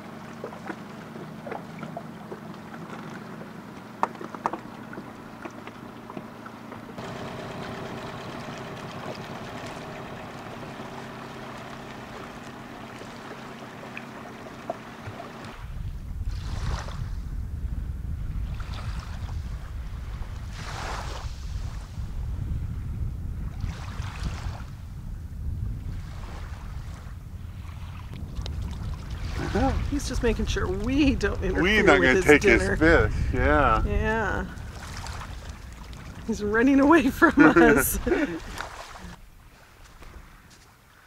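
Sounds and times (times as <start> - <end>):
small boat motor running: 0.0 - 16.6, 26.0 - 39.2
waves washing: 0.0 - 17.3, 18.5 - 22.1, 23.6 - 24.8, 25.9 - 41.0
wind rumbling on microphone: 14.6 - 40.6.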